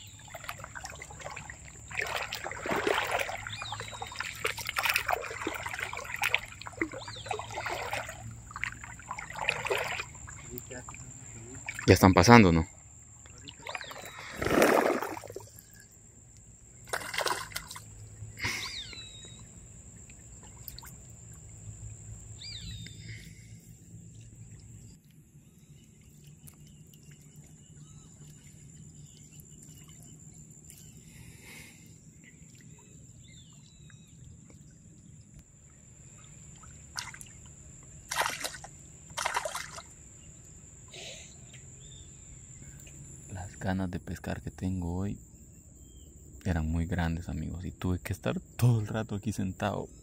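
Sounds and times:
water trickling: 0.0s - 23.0s, 23.8s - 31.0s, 31.8s - 40.9s
high-pitched insect trill: 0.0s - 50.0s
short bird chirps: 18.4s - 19.4s.

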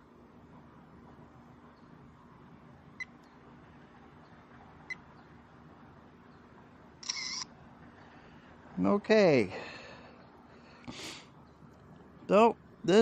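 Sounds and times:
camera clicks: 7.0s - 7.5s
camera shutter: 7.0s - 7.5s.

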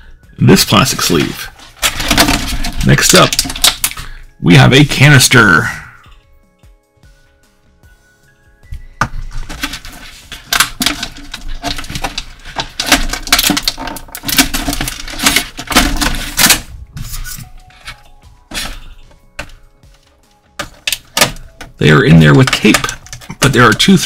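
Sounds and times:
plastic crackling and clicking: 1.1s - 4.1s, 9.2s - 24.0s.

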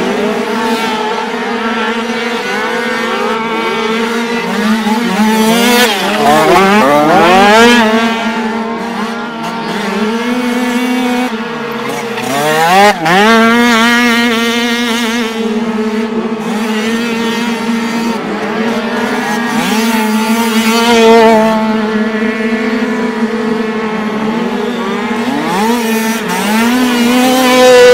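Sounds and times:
dirt bike engines revving: 0.0s - 27.9s.

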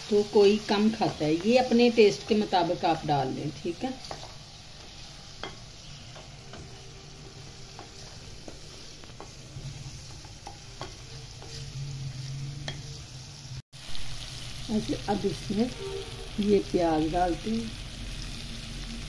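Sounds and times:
chicken sizzling in pan: 0.0s - 19.0s
spatula scraping a pan: 0.7s - 13.5s.

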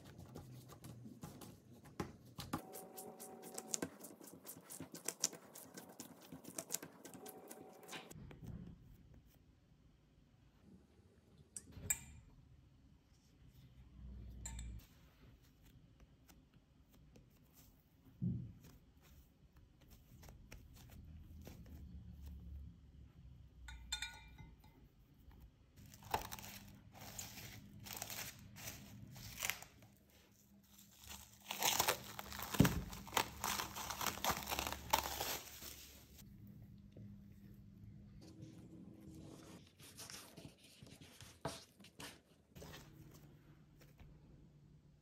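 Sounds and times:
cling film crinkling and tearing: 25.9s - 29.8s, 30.8s - 36.2s.

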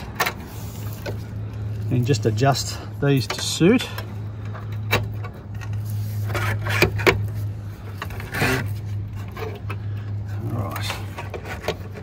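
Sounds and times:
metal brackets clicking and scraping: 0.0s - 12.0s
steady low hum: 0.0s - 12.0s.

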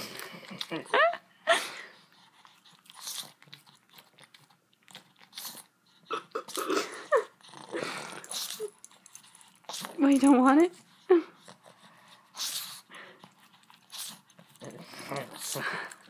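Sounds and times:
puppy licking and lip smacking: 2.1s - 6.7s, 8.2s - 16.0s.

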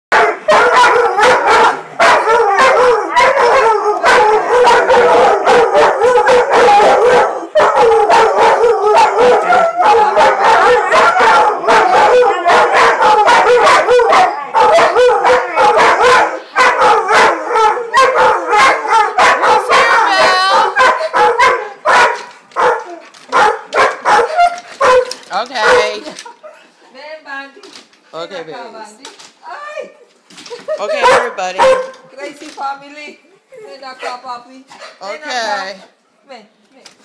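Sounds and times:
dogs howling: 0.2s - 26.0s.

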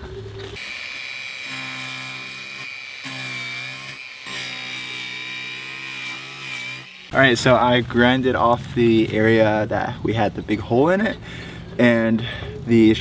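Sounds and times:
angle grinder whining: 0.5s - 7.2s.

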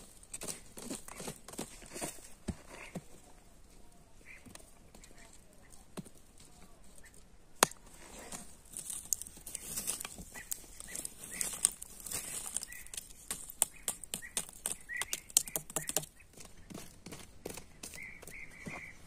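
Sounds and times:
stick raking through charcoal: 0.0s - 3.4s, 4.4s - 19.0s
charcoal lumps clicking: 4.5s - 18.6s.

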